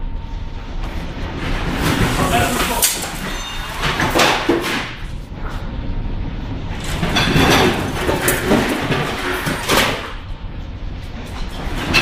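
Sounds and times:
constant low rumble: 0.0 - 12.0
storm wind: 4.8 - 12.0.

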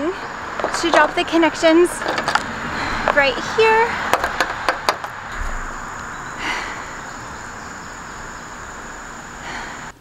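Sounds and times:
high-pitched insect drone: 3.2 - 9.9
low background hiss: 5.1 - 10.0.

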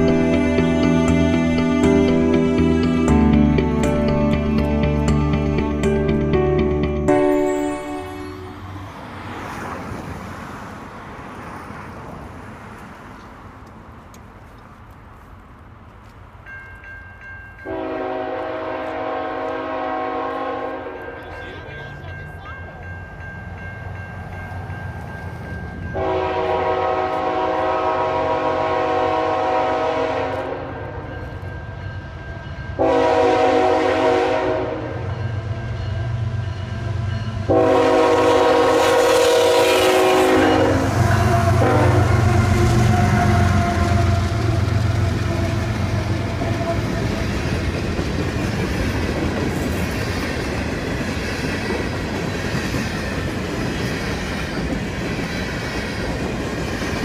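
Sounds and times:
diesel locomotives rumbling: 0.0 - 57.0
train air horn blasts: 17.6 - 21.2, 26.0 - 31.0, 32.8 - 35.1, 37.5 - 47.2.

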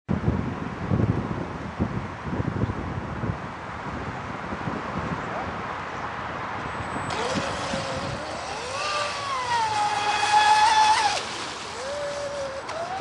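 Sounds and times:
model speedboat motor whining: 6.9 - 13.0.

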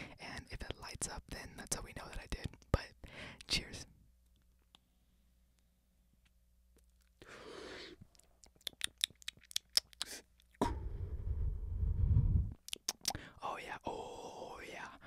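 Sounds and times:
short breath: 7.2 - 8.0
wet mouth clicks: 8.0 - 10.8, 12.6 - 13.2.

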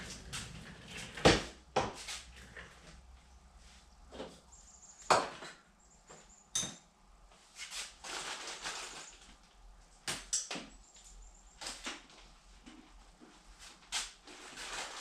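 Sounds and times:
rustling and scraping: 0.0 - 4.7, 7.4 - 9.4, 11.0 - 15.0
tools knocking and clacking: 6.5 - 6.9.

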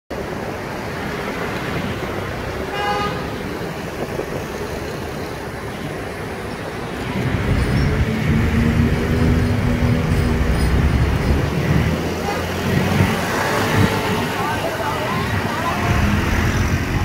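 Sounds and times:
street traffic noise: 0.1 - 17.0
vehicle horn toot: 2.7 - 3.3.

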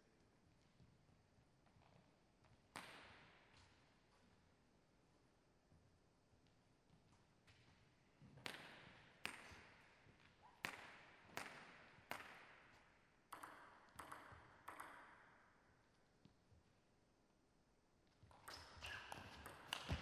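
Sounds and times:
table tennis ball clicking: 13.3 - 15.2.

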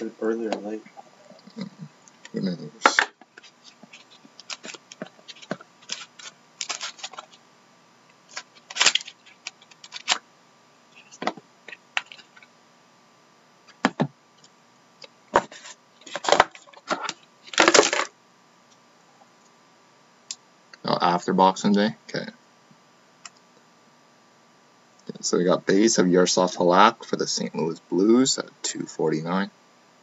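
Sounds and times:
cards rustling: 2.3 - 7.4, 8.3 - 10.2.

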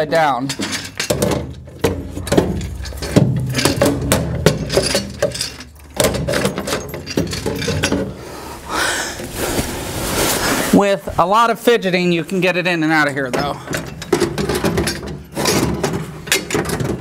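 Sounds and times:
metal clanking and scraping: 0.0 - 8.3, 13.3 - 17.0
cloth rustling: 8.6 - 11.2.

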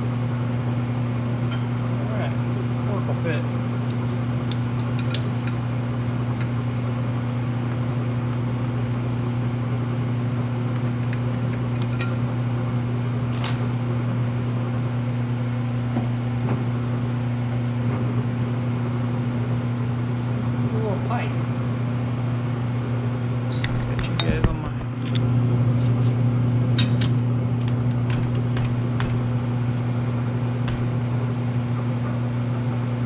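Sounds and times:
metal lathe humming: 27.2 - 33.0.

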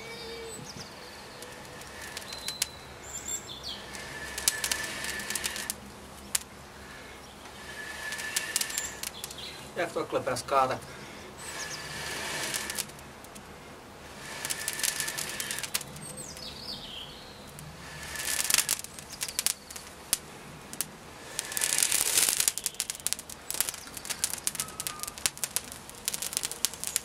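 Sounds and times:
tinder crackling: 0.0 - 27.0
breath blowing into tinder: 0.9 - 5.9, 6.7 - 9.8, 11.4 - 13.0, 14.0 - 16.3, 17.7 - 19.8, 21.2 - 25.3.

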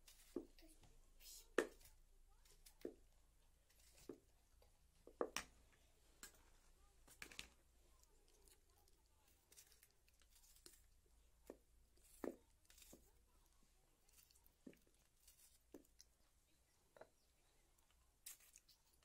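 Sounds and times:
knife slicing tomatoes: 0.0 - 0.6, 3.6 - 4.3, 9.4 - 13.2.

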